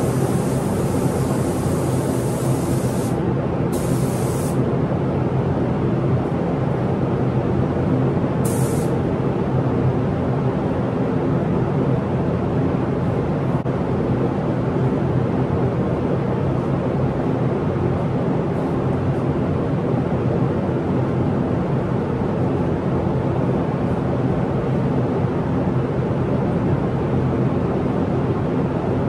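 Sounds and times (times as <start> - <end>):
spray gun hissing in bursts: 0.0 - 4.6, 8.4 - 9.0
ventilation rush with low hum: 0.0 - 29.0.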